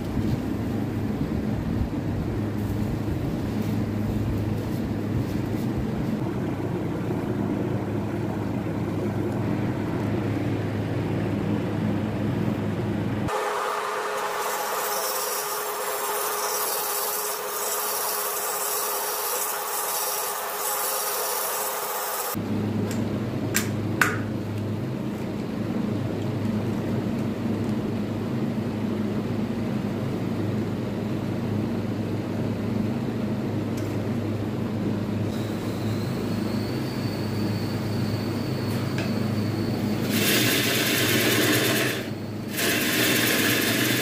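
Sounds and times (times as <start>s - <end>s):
workshop machine hum: 0.0s - 44.0s
wood lathe spinning: 13.3s - 22.4s, 40.0s - 44.0s.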